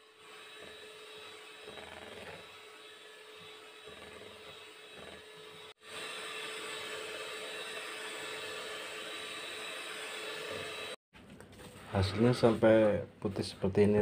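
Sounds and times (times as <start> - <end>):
electric hand mixer whirring: 0.0 - 11.0.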